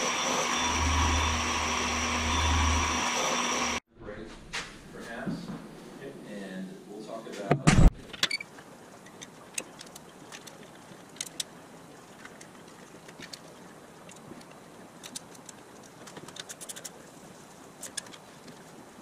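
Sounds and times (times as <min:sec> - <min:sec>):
low steady hiss: 0:04.0 - 0:19.0.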